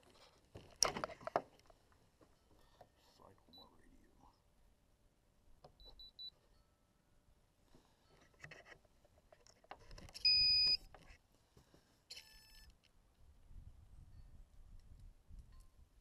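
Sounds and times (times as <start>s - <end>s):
faint clicks and handling: 0.0s - 3.2s, 7.7s - 11.9s
electronic device beeping: 10.2s - 10.8s.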